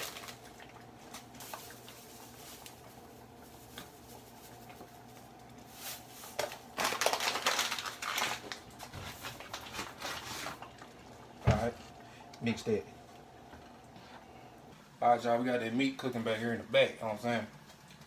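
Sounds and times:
paper bag crinkling: 0.0s - 10.9s
faint steady hum: 0.0s - 18.0s.

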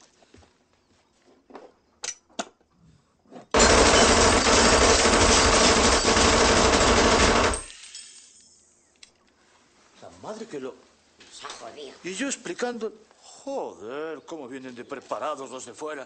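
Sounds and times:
submachine gun burst: 3.6s - 7.8s.

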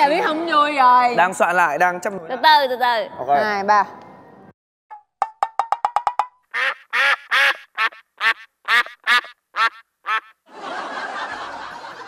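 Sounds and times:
cartoon duck quacks: 6.6s - 10.4s.

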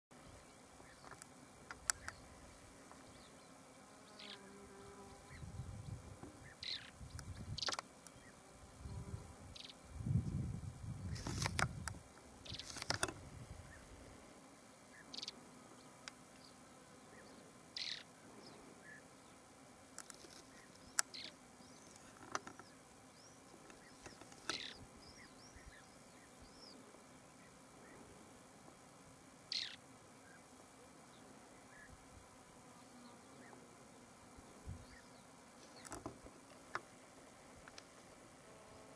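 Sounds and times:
songbirds chirping: 0.1s - 14.0s, 14.6s - 38.3s
bird giving buzzy calls: 3.0s - 9.9s, 16.5s - 19.1s, 20.4s - 26.8s, 29.5s - 30.5s
buzzy bird calls: 6.4s - 8.4s, 17.2s - 18.2s, 22.7s - 26.7s, 29.5s - 30.4s.

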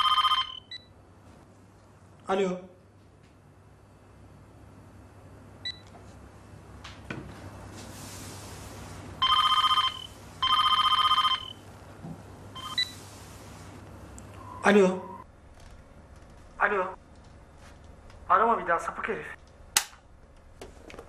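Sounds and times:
telephone ringing: 0.0s - 0.9s, 9.2s - 11.7s, 12.6s - 13.0s.

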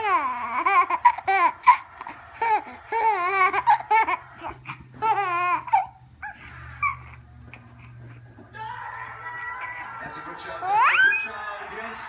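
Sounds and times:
baby squealing and laughing: 0.0s - 7.2s, 10.6s - 11.3s.

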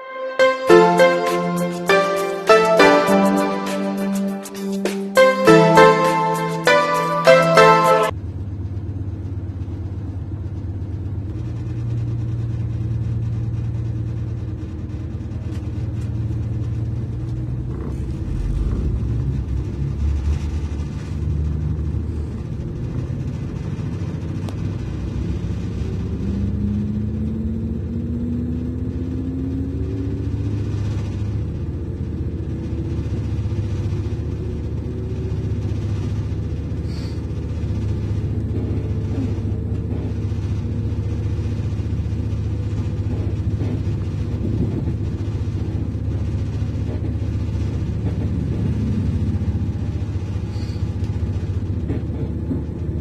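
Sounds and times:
train whine rising in pitch: 0.0s - 8.1s
diesel engine rumbling: 8.6s - 53.0s.

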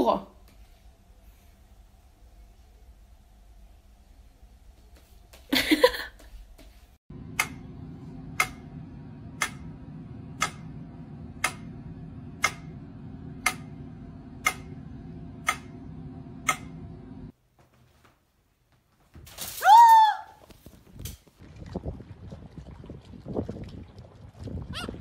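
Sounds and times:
steady low hum: 0.3s - 19.0s
metronome ticking: 8.3s - 8.8s, 9.4s - 14.8s, 15.4s - 16.8s
short loud cry: 19.6s - 20.4s.

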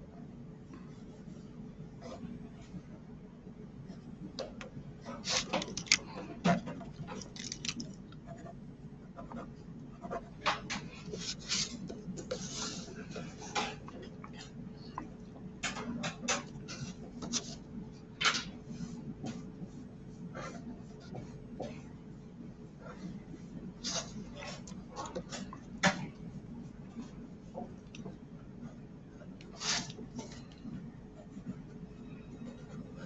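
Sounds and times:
pencil scratching on paper: 5.0s - 5.9s, 8.2s - 10.4s, 31.1s - 33.0s.

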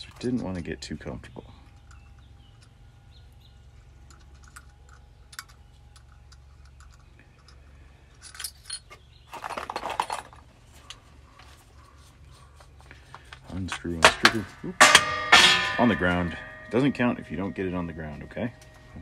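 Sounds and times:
low steady hum: 0.0s - 19.0s
rattling crunching scrape: 8.2s - 10.5s, 12.6s - 18.9s.

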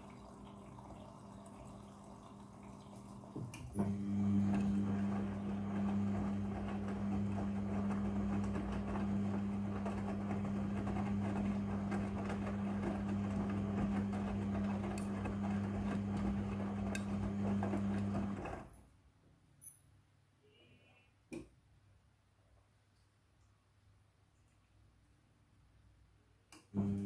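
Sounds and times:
washing machine drum spinning: 0.0s - 18.7s.

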